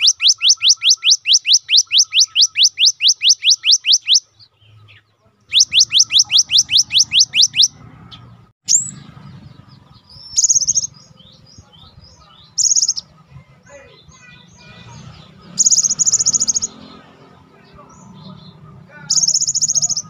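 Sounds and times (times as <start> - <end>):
buzzy bird trill: 0.0 - 20.0.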